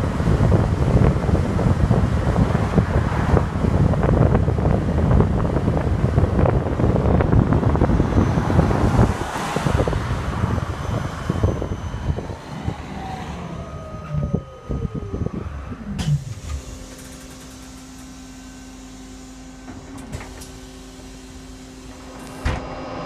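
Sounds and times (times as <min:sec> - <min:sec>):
wind buffeting microphone: 0:00.0 - 0:16.8
road noise: 0:00.0 - 0:23.0
electric motor whine falling: 0:07.0 - 0:23.0.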